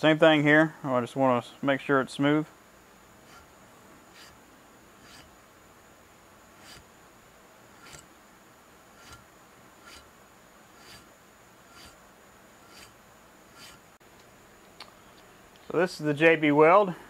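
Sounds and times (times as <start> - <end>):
hand file strokes on metal: 3.2 - 4.4, 5.0 - 5.4, 6.5 - 6.9, 7.7 - 8.1, 8.9 - 12.0, 12.6 - 14.0.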